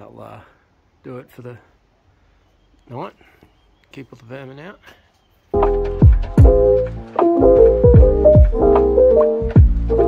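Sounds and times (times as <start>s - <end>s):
deep bass hits dropping in pitch: 5.6s - 10.0s
held music chords: 5.6s - 10.0s.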